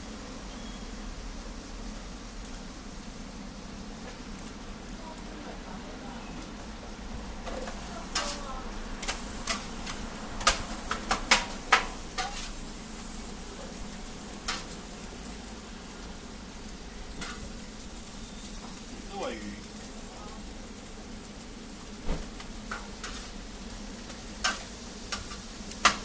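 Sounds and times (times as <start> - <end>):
pancakes sizzling on a griddle: 0.0 - 26.0
metal spatula scraping griddle: 7.4 - 13.1, 14.3 - 15.0, 17.1 - 17.5, 22.7 - 23.4.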